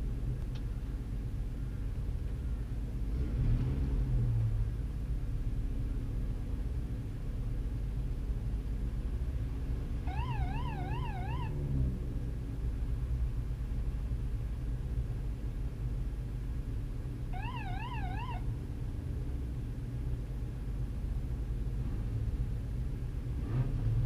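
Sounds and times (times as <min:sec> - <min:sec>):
car engine idling: 0:00.0 - 0:03.3.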